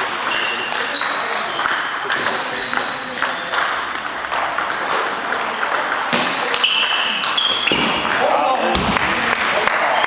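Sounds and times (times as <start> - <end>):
table tennis ball clicking: 0.2 - 7.4
short high squeak: 6.6 - 7.8.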